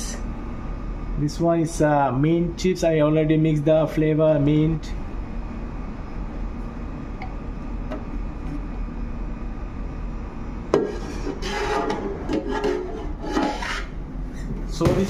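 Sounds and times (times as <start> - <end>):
steady low hum: 0.0 - 15.0
plastic scraper scraping metal pan: 10.9 - 13.9.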